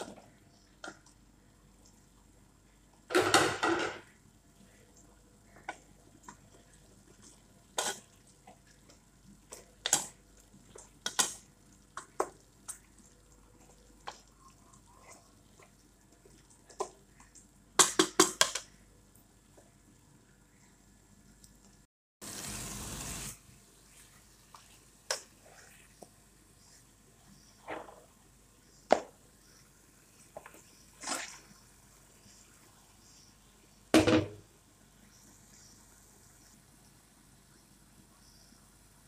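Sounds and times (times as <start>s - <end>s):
spoon stirring thick curry: 5.5s - 17.4s.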